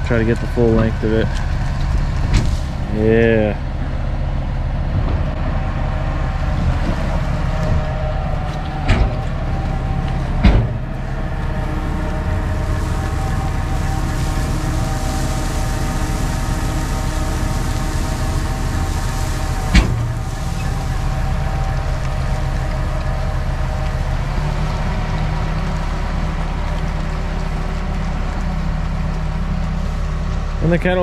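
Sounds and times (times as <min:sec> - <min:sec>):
tractor engine running: 0:00.0 - 0:31.0.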